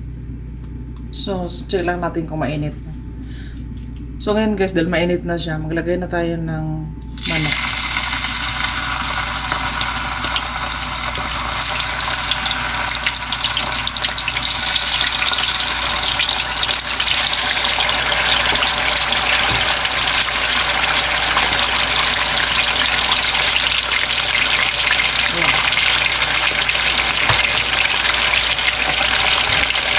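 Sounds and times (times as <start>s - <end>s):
chicken sizzling in hot oil: 7.1s - 29.9s.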